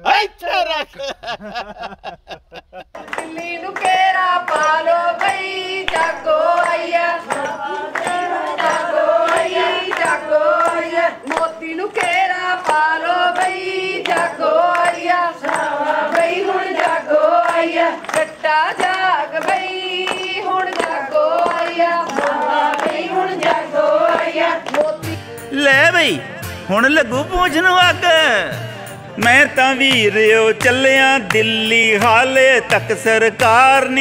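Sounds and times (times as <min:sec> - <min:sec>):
women singing folk song: 0:03.0 - 0:25.3.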